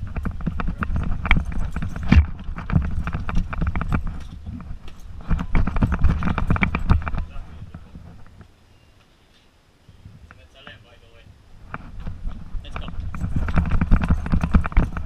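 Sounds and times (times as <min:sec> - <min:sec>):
camera bumping and rubbing: 0:00.0 - 0:08.5, 0:11.6 - 0:15.0
dog paws on wooden boards: 0:00.0 - 0:08.6, 0:11.6 - 0:15.0.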